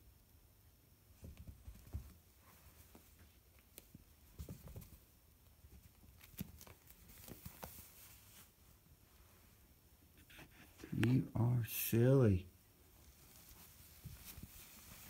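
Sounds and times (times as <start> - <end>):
cat scrabbling in fabric: 1.2 - 5.1, 13.1 - 15.0.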